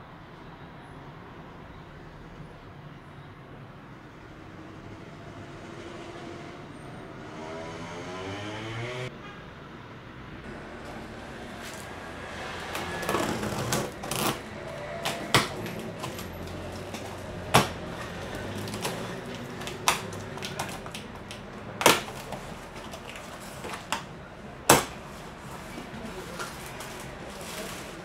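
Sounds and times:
cardboard rustling and scraping: 10.9s - 24.1s, 24.7s - 28.0s
cardboard snapping and knocking: 12.7s - 24.1s, 24.7s - 25.0s.

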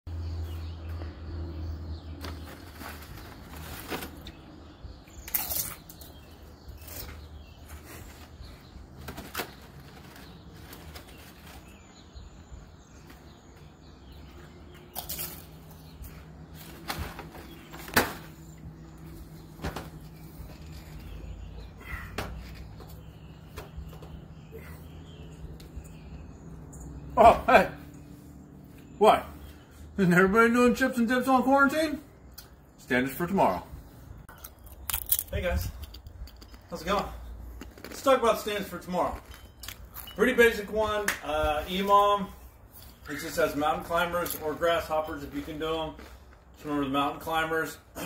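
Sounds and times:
low outdoor hum: 0.1s - 48.0s
chips being eaten: 5.2s - 6.1s, 34.3s - 36.8s, 37.6s - 38.1s.

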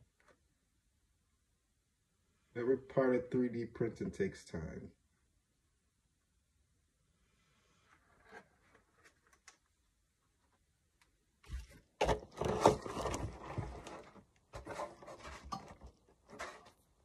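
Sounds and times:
plastic rubbing and scraping: 11.5s - 17.0s.

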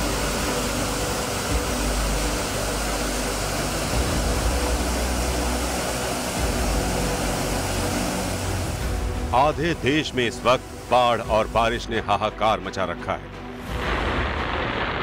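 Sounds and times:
water rushing over a weir: 0.0s - 11.8s, 13.6s - 15.0s.

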